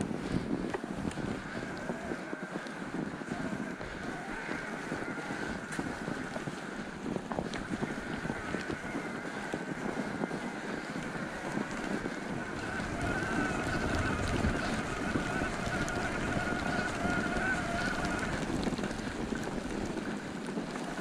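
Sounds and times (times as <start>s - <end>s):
bike tyres crunching through snow: 0.0s - 21.0s
wind buffeting microphone: 0.0s - 21.0s.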